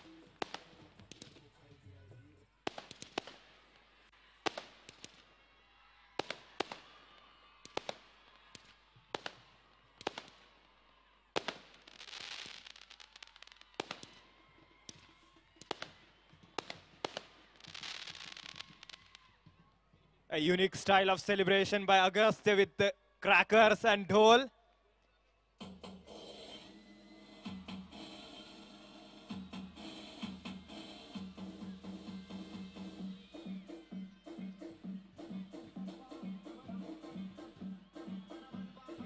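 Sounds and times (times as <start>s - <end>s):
firecrackers banging: 0.0s - 1.5s, 2.7s - 3.8s, 11.4s - 14.2s, 14.9s - 19.2s.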